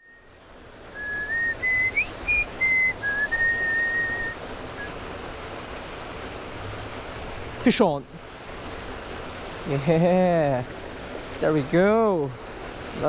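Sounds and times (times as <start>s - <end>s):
creek water rushing: 0.0s - 13.0s
person whistling a tune: 1.0s - 4.9s.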